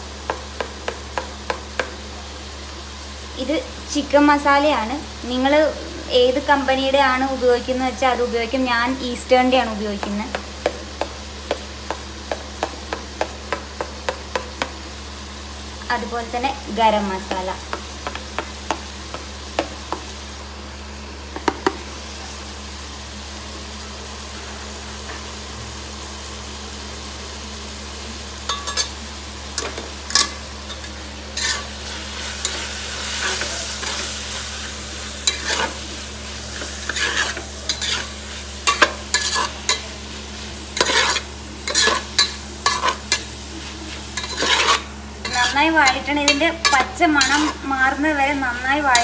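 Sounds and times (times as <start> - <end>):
light sizzle of frying: 0.0 - 49.0
metal spoon scraping pot: 36.9 - 38.1, 38.7 - 39.8, 40.8 - 43.2, 44.2 - 47.6.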